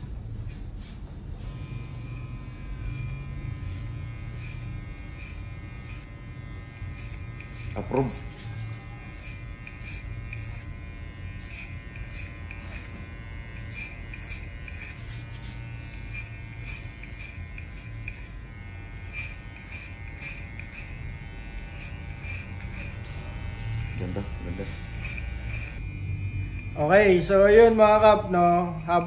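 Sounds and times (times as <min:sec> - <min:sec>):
hair clipper motor buzzing: 0:01.4 - 0:29.0
clipper blade crackling through hair: 0:09.1 - 0:25.8.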